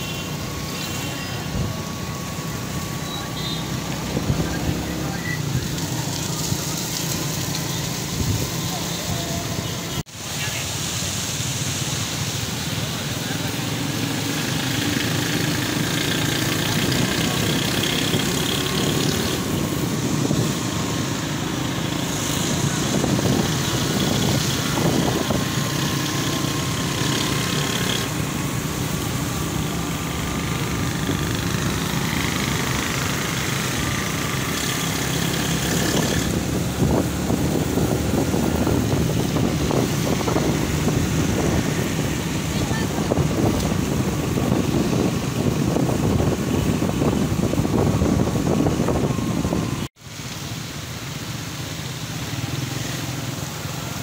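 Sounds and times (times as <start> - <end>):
tyre noise on wet road: 0.0 - 54.0
motorcycle engine running: 13.8 - 49.6.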